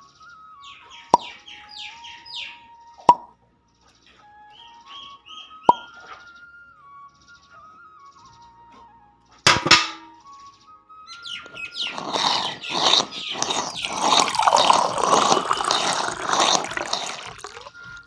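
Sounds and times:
tin bucket clink: 0:09.5 - 0:10.1, 0:12.0 - 0:17.8
water gushing from hand pump: 0:11.8 - 0:18.0.

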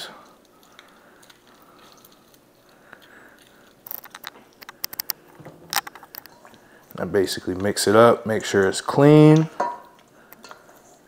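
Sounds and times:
wet squelches and clicks: 0:00.2 - 0:07.8.

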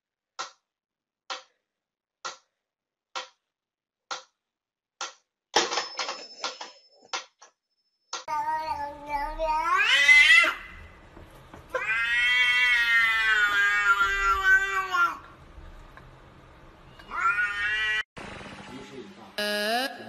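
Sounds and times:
cat meowing: 0:08.3 - 0:10.7, 0:11.7 - 0:15.2, 0:17.0 - 0:18.0.

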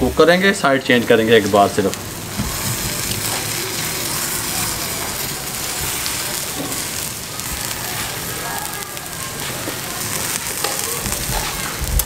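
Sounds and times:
chicken skewers sizzling over charcoal: 0:00.0 - 0:12.0.

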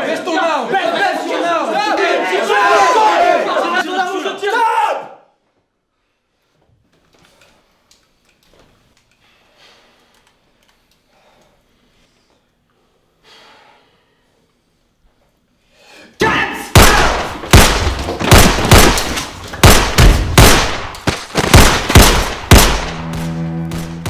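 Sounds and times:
pistol shots: 0:16.8 - 0:23.0
bowed string note: 0:22.9 - 0:24.0.

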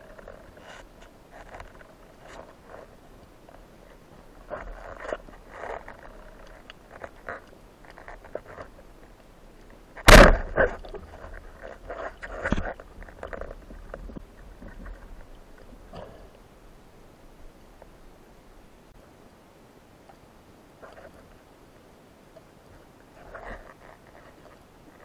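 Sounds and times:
faint underwater clicks: 0:00.0 - 0:16.5
speargun firing underwater: 0:10.1 - 0:10.8.

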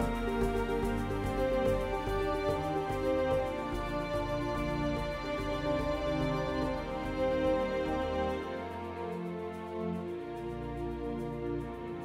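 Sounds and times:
background music with held tones: 0:00.0 - 0:12.0.

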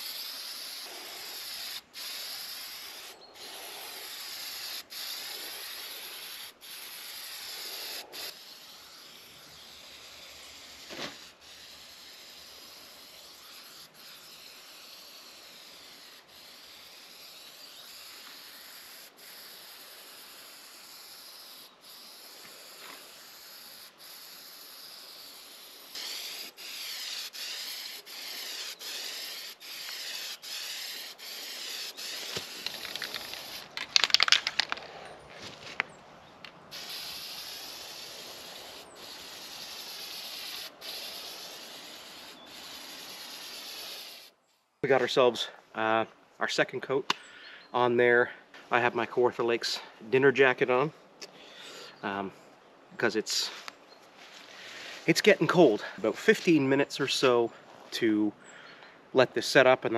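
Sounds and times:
aerosol spray can hissing: 0:00.0 - 0:34.2, 0:36.7 - 0:44.3.

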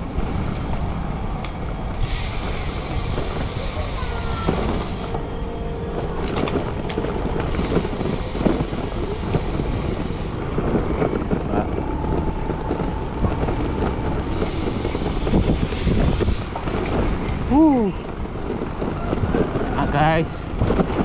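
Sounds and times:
bike rolling on rough lane: 0:00.0 - 0:21.0
wind on microphone: 0:00.0 - 0:21.0.

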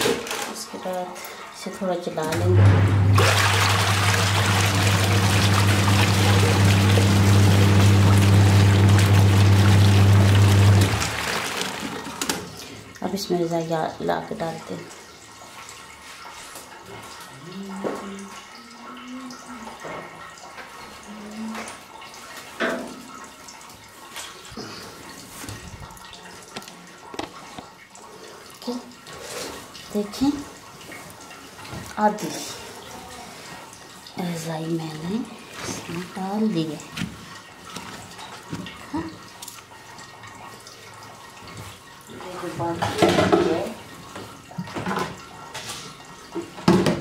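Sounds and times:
agitator churning water: 0:00.0 - 0:47.0
washing machine motor humming: 0:02.1 - 0:12.6.

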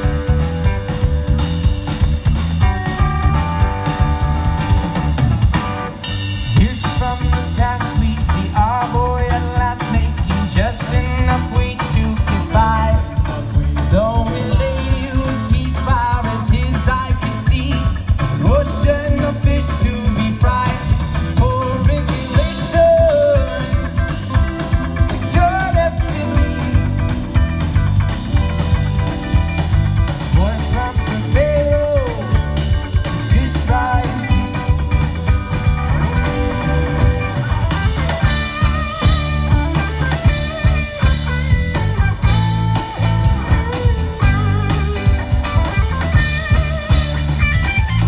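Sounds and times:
bass guitar: 0:00.0 - 0:48.0
drum kit: 0:00.0 - 0:48.0
electric guitars: 0:00.0 - 0:48.0
lead vocal singing: 0:06.5 - 0:24.3, 0:25.1 - 0:27.2, 0:30.3 - 0:35.0.

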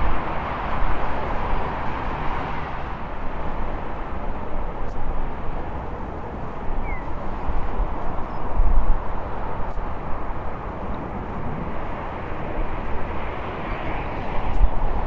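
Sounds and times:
distant jet engine noise: 0:00.0 - 0:15.0
wind on microphone: 0:00.0 - 0:15.0.

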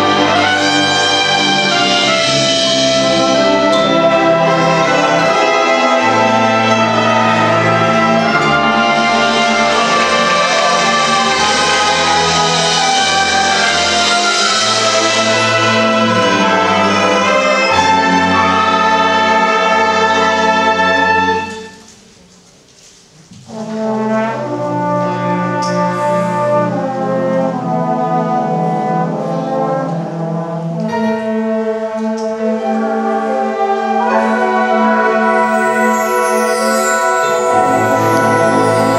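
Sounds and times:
brass ensemble playing chords: 0:00.0 - 0:21.8, 0:23.5 - 0:38.9.

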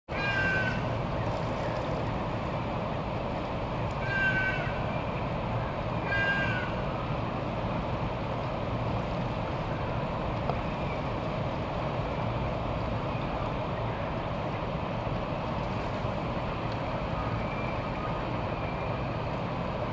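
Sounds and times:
short mewing call: 0:00.1 - 0:00.8, 0:04.0 - 0:04.8, 0:06.0 - 0:06.8
steady background noise: 0:00.1 - 0:19.9.

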